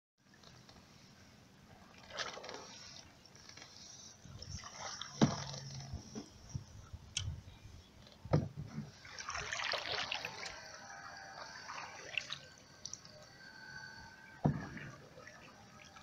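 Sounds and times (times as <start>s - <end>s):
paddle splashing water: 1.7s - 6.5s, 8.4s - 16.0s.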